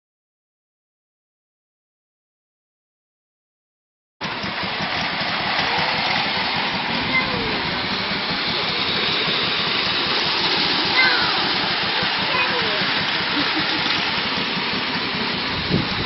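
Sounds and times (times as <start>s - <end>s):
clockwork toy train whirring rattle: 4.2s - 16.0s.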